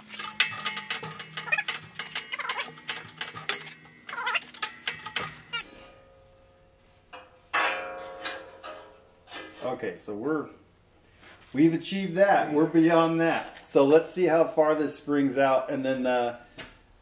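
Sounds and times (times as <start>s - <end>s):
hydraulic press clicks and squeaks: 0.0s - 5.6s.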